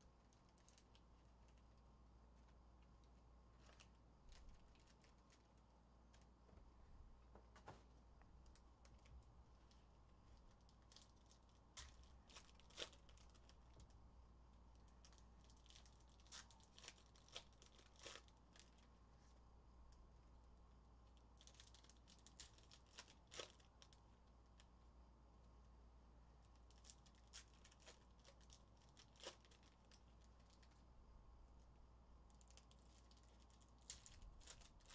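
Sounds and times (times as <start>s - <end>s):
faint low hum: 0.0s - 34.9s
foil wrappers crinkling and tearing: 3.6s - 6.3s, 10.4s - 13.9s, 15.0s - 18.9s, 21.4s - 24.0s, 26.6s - 30.8s, 32.3s - 34.9s.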